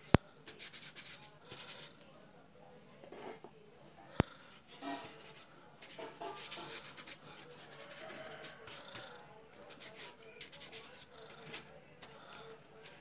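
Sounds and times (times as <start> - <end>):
painting knife scraping paint: 0.4 - 2.0, 4.5 - 13.0.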